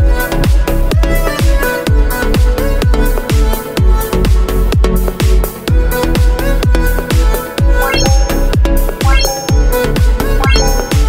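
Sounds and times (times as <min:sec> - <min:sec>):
electronic dance music: 0:07.8 - 0:11.0.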